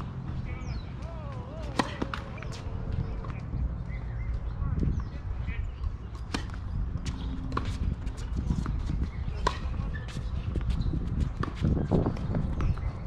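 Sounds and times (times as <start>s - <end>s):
tennis ball bouncing: 0.0s - 4.0s, 5.8s - 10.7s
rackets striking tennis ball: 0.6s - 3.5s.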